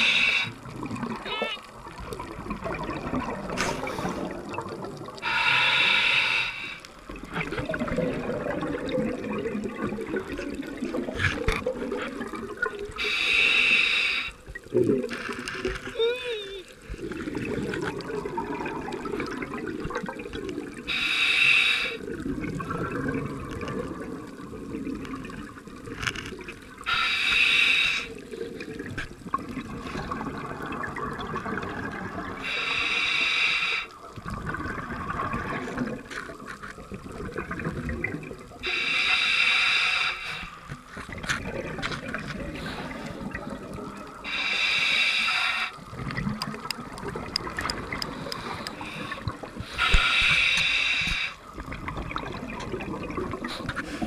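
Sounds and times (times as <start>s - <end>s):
diver breathing through regulator: 0.0s - 0.6s, 5.2s - 6.9s, 13.0s - 14.4s, 20.9s - 22.0s, 26.9s - 28.2s, 32.4s - 33.9s, 38.6s - 40.6s, 44.2s - 45.8s, 48.0s - 51.4s
underwater bubbling and rumbling: 0.0s - 54.0s.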